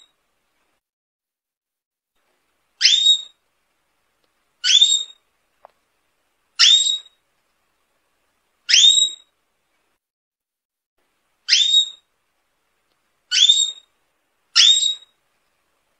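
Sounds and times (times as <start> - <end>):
canary whistled call: 2.8 - 3.3, 4.6 - 5.2, 6.6 - 7.1, 8.7 - 9.3, 11.5 - 12.0, 13.3 - 13.9, 14.6 - 15.1.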